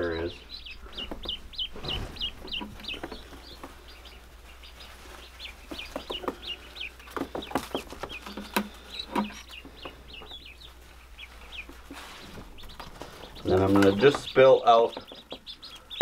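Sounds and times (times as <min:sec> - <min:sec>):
ducklings peeping: 0:00.0 - 0:16.0
sharp knocks and clicks: 0:05.7 - 0:10.3, 0:12.7 - 0:15.5.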